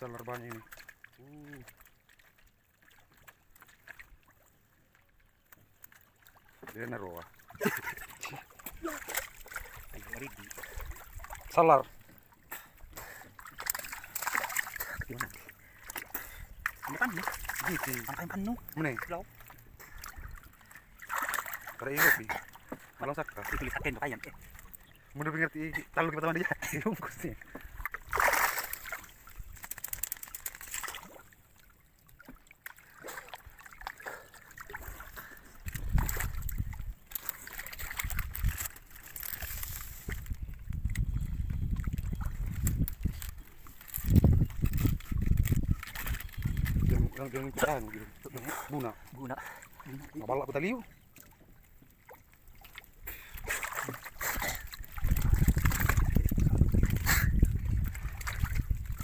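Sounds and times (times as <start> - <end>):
water splashing and sloshing: 0.0 - 59.0.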